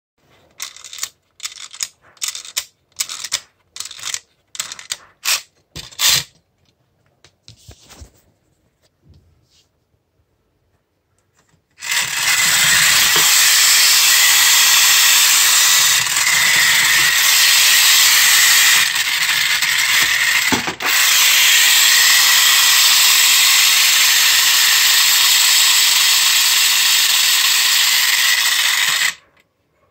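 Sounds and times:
clockwork spring ratcheting: 0:00.6 - 0:06.3, 0:11.8 - 0:29.2
clockwork motor whirring: 0:11.8 - 0:29.2.

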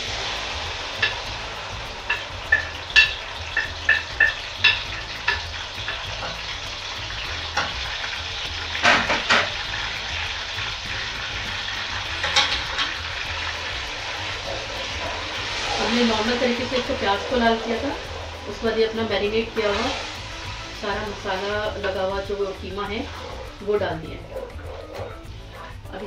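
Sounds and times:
meat sizzling in hot oil: 0:00.0 - 0:26.0
sharp ticks: 0:00.1 - 0:15.8.

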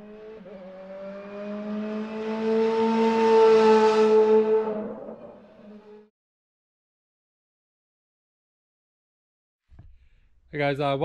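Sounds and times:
car engine accelerating: 0:00.0 - 0:06.1.

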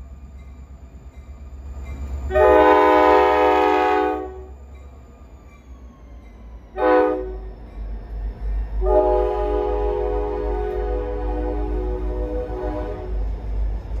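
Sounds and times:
diesel locomotive rumble: 0:00.0 - 0:14.0
locomotive air horn blasts: 0:02.3 - 0:04.5, 0:06.8 - 0:07.4, 0:08.8 - 0:13.2.

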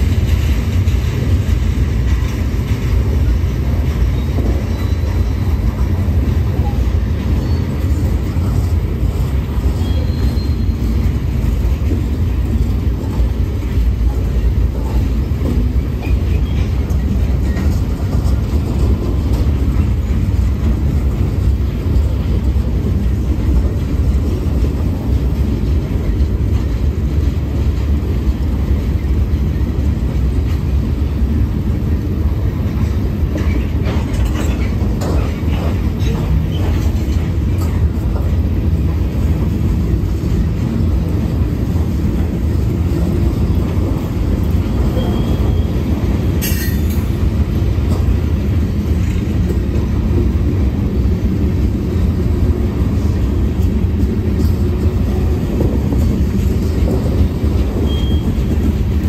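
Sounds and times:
train wheels rumbling on rails: 0:00.0 - 0:59.0
faint wheel squeal: 0:04.2 - 0:05.6, 0:06.6 - 0:08.0, 0:09.7 - 0:11.1, 0:44.9 - 0:45.9, 0:57.8 - 0:58.5.

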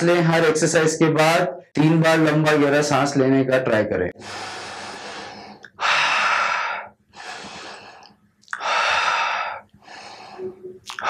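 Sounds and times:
man breathing deeply: 0:04.2 - 0:11.0.

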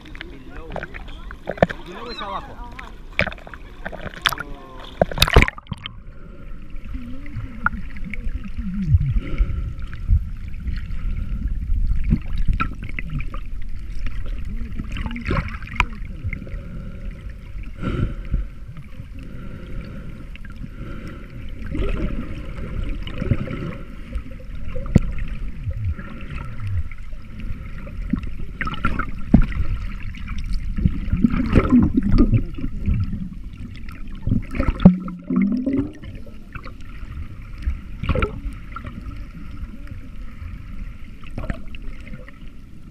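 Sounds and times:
water gurgling underwater: 0:00.0 - 0:42.9
low rumble: 0:03.0 - 0:19.4.

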